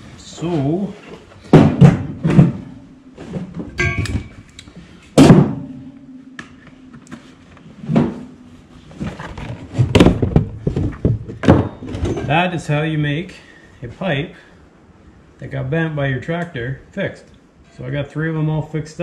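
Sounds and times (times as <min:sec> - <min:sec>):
metal knocking and clanking: 0:01.5 - 0:04.6, 0:05.2 - 0:12.4
low ringing hum: 0:02.0 - 0:09.7.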